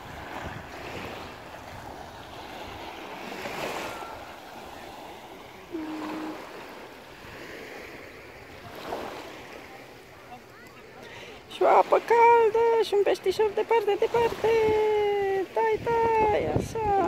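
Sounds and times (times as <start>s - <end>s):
waves lapping on pebbles: 0.0s - 14.8s
brief steady tone: 5.7s - 6.7s.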